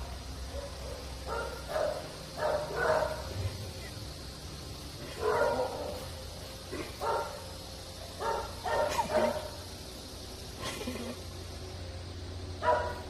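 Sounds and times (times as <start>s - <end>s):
dog yipping: 12.6s - 13.0s.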